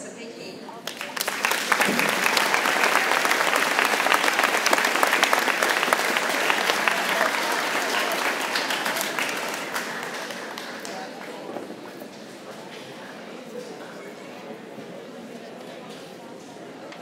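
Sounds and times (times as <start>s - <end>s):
crowd clapping: 0.8s - 12.9s.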